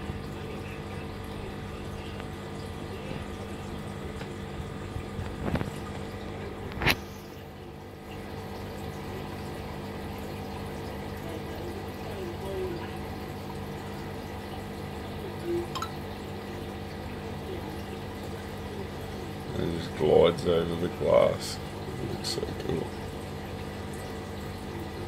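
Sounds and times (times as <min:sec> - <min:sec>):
low mechanical hum: 0:00.0 - 0:25.0
trickle of moving water: 0:00.0 - 0:25.0.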